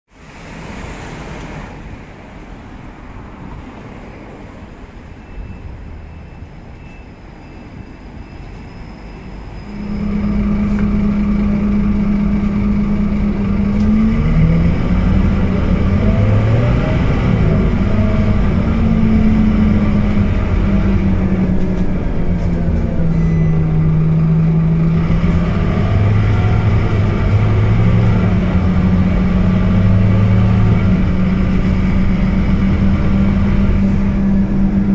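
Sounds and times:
bus diesel engine from inside: 0.1 - 34.9
street traffic: 0.1 - 34.9.

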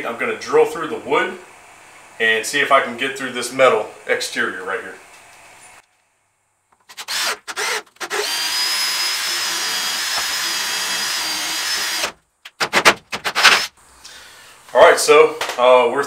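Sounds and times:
cordless drill boring through wood: 7.0 - 12.2.

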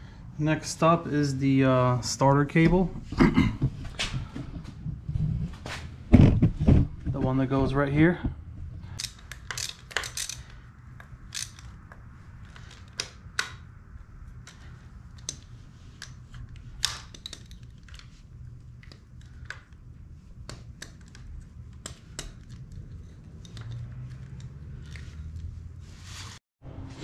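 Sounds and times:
steady low hum: 0.0 - 26.0
wrench clicking on metal: 9.0 - 12.0.

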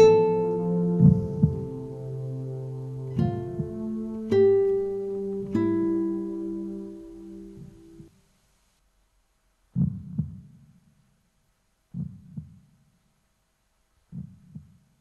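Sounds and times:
slow low heartbeat: 0.9 - 2.0, 3.2 - 4.0, 9.8 - 10.8, 11.9 - 12.8, 14.1 - 15.0.

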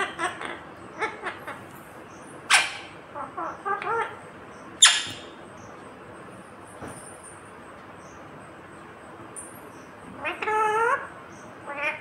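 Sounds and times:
parakeet screeching: 0.0 - 1.6, 2.5 - 4.2, 4.8 - 5.4, 10.2 - 12.0
parakeet chattering: 0.0 - 5.4, 10.2 - 12.0.

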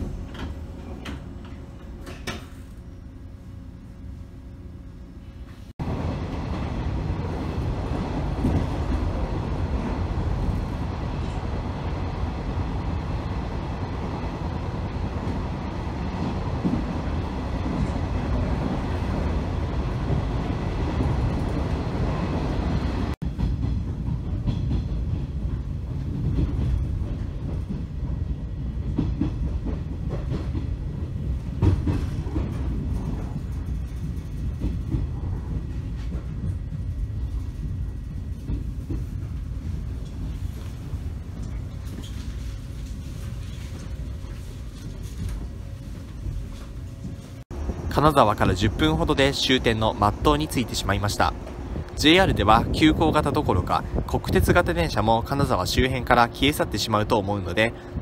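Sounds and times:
train wheels rumbling on rail: 0.0 - 58.0
train knocks: 5.8 - 10.5, 16.1 - 56.6.

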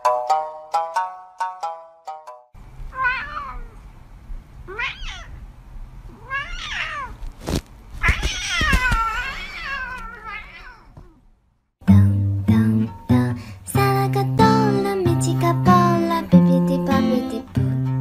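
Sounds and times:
cat meowing: 2.9 - 3.8, 4.7 - 5.4, 6.1 - 7.2, 8.0 - 11.2.

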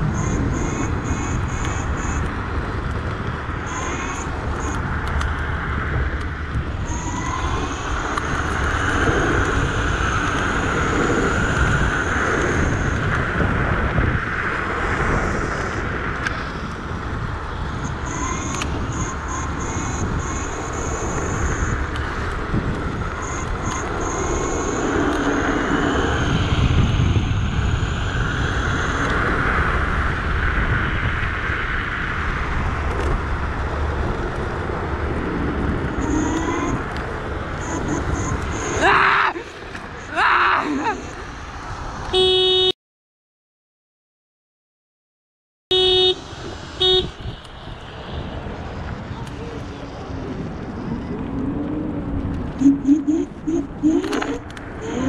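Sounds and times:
thin high whine: 0.0 - 2.3, 3.6 - 4.9, 6.8 - 13.4, 17.7 - 22.3, 22.9 - 29.8, 35.8 - 41.4
scooter tyre noise: 0.0 - 42.7, 45.7 - 55.0
wind rushing over microphone: 0.0 - 42.7, 45.7 - 55.0.

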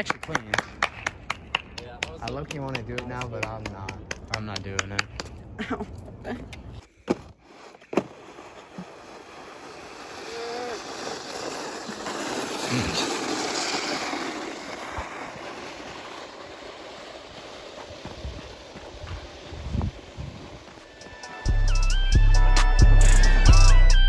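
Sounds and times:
snowboard scraping over snow: 7.4 - 21.6.

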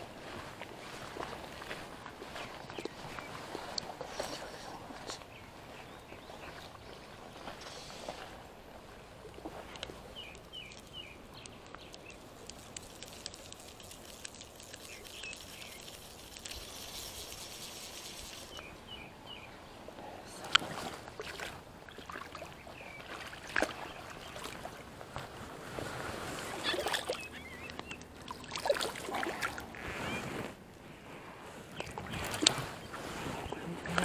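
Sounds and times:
fish thrashing in water: 9.3 - 18.6, 26.5 - 29.7.

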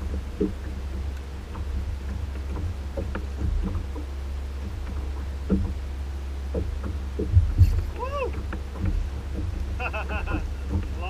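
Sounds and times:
water slapping kayak hull: 0.0 - 11.0
wind rumble on microphone: 0.0 - 11.0.

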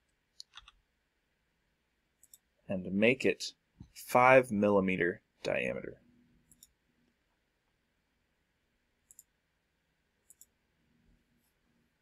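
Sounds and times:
faint computer mouse clicks: 0.4 - 0.8, 6.5 - 6.8, 9.0 - 9.3, 10.2 - 10.6.

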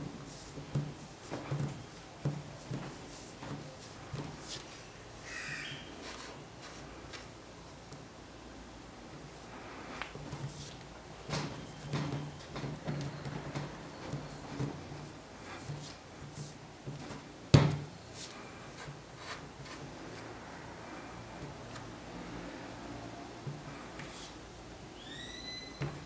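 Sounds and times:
handling knocks and taps: 0.0 - 4.6, 10.0 - 16.0.

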